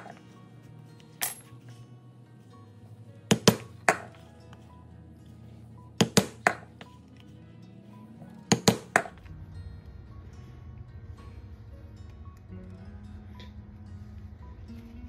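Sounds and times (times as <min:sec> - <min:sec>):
mallet striking metal chisel: 0:03.3 - 0:04.2, 0:06.0 - 0:06.8, 0:08.5 - 0:09.2.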